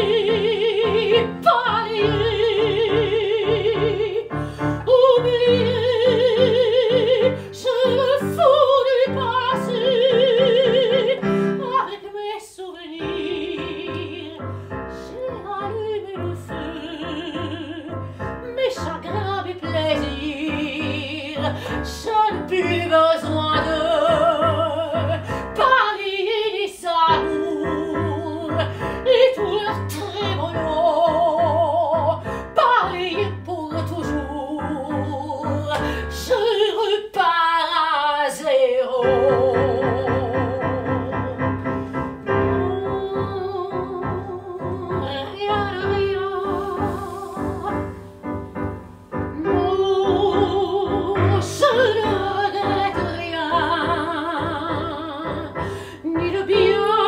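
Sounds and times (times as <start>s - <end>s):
soprano singing operatically: 0.0s - 57.0s
digital piano accompaniment: 39.0s - 57.0s.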